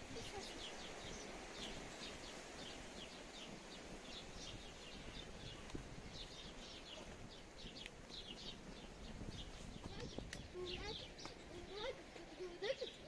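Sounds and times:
faint background noise: 0:00.0 - 0:13.0
small birds chirping: 0:00.0 - 0:13.0.

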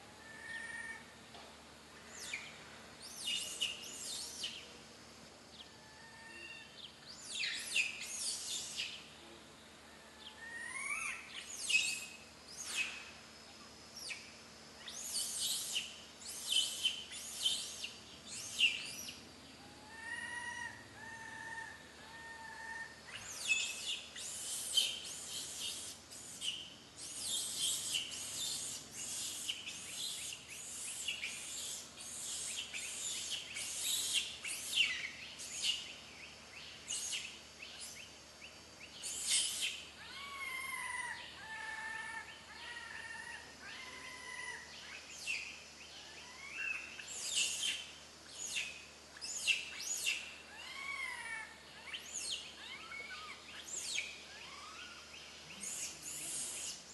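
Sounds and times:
infant monkey crying: 0:00.1 - 0:01.2, 0:05.7 - 0:06.8, 0:10.1 - 0:12.1, 0:15.1 - 0:35.9, 0:39.1 - 0:45.0, 0:46.0 - 0:47.8, 0:49.5 - 0:56.8.

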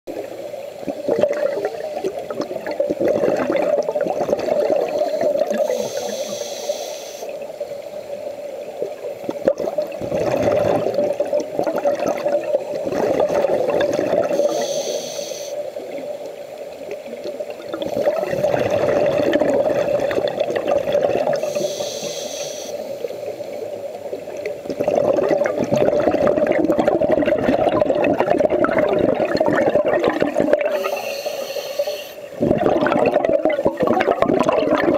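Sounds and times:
bubbling exhales: 0:01.0 - 0:06.4, 0:09.4 - 0:15.0, 0:17.6 - 0:22.1, 0:24.7 - 0:34.9
hissing regulator inhales: 0:04.8 - 0:07.4, 0:14.3 - 0:15.7, 0:21.4 - 0:23.6, 0:30.7 - 0:32.4.

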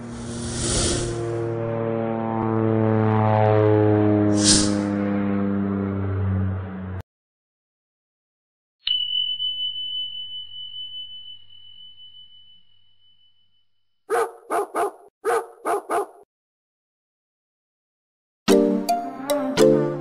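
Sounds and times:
high chime ringing: 0:08.8 - 0:13.9
dog barking: 0:14.1 - 0:16.2.

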